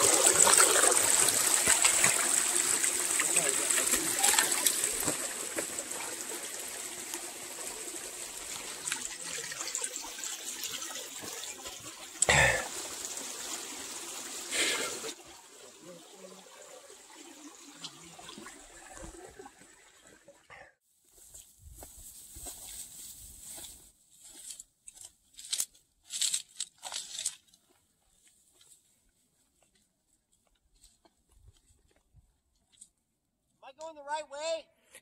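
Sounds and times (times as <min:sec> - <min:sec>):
water trickling: 0:00.0 - 0:20.4.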